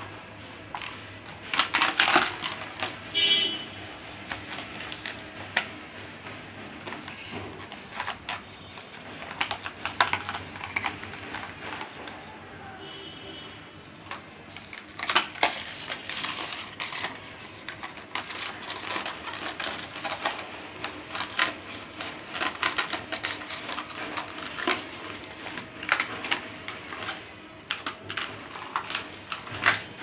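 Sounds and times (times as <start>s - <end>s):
plastic cup clattering on tile floor: 0.8s - 3.2s, 6.8s - 12.3s, 14.0s - 30.0s.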